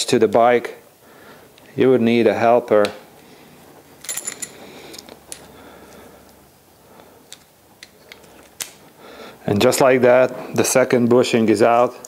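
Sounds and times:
metallic tool clicks and clinks: 4.0s - 5.5s.

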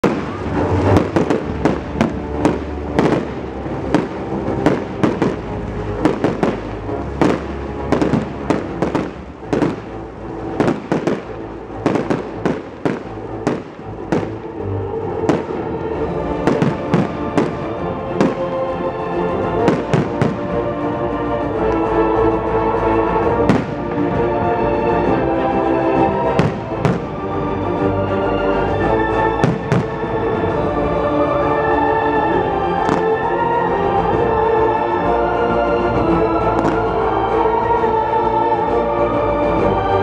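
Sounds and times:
fireworks bursting: 0.0s - 14.5s, 15.2s - 15.7s, 16.4s - 18.5s, 19.6s - 20.6s, 23.5s - 24.1s, 26.1s - 27.2s, 29.4s - 30.0s, 36.5s - 37.0s
music playing: 0.0s - 40.0s.

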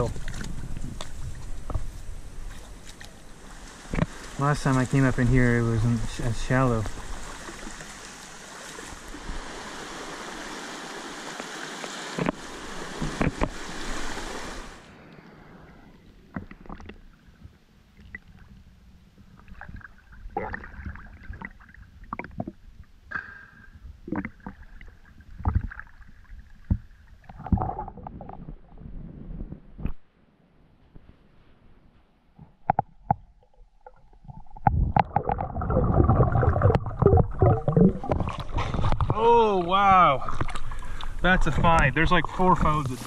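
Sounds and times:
muffled water splashing: 0.0s - 30.1s, 31.0s - 43.0s
river water rushing: 6.5s - 15.1s.

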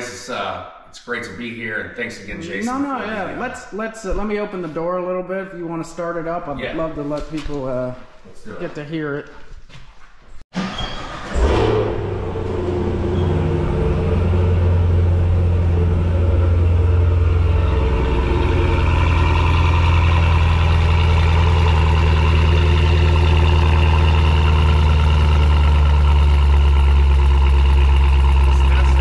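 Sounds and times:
car engine starting and idling: 10.5s - 29.0s.

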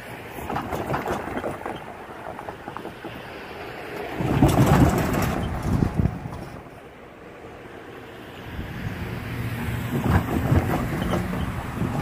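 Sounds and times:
tyres thumping over rails: 0.0s - 6.8s, 9.6s - 12.0s
cars driving over rail crossing: 0.0s - 12.0s
wind on microphone: 4.2s - 6.6s, 8.4s - 12.0s.

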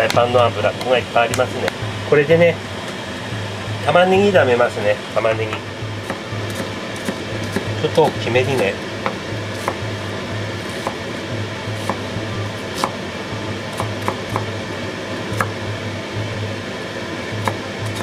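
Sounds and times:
steady low hum: 0.0s - 18.0s
knife chopping on cutting board: 6.0s - 11.0s, 11.8s - 12.0s, 12.6s - 13.0s, 13.7s - 14.5s.

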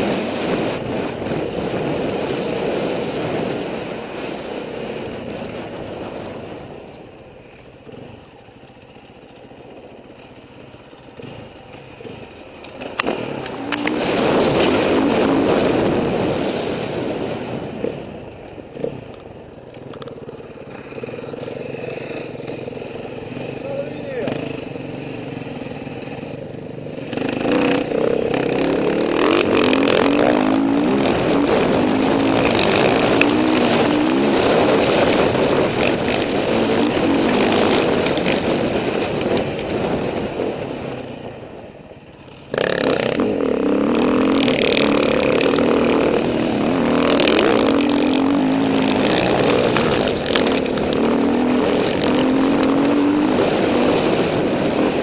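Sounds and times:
dirt bike engine revving: 7.7s - 19.1s, 20.0s - 40.9s, 42.3s - 55.0s.

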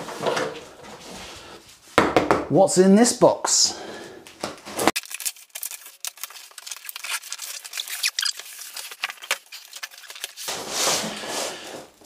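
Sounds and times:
cardboard box being torn open: 5.0s - 10.8s.

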